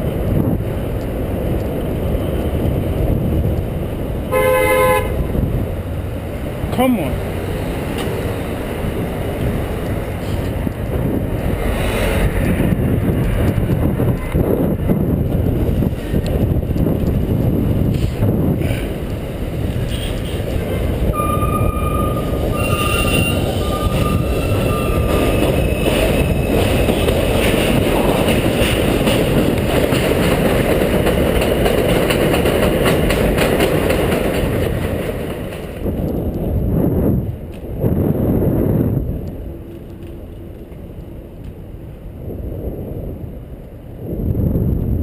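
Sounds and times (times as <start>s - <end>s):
train rumbling on viaduct: 0.0s - 45.0s
high wheel squeal: 21.1s - 27.1s.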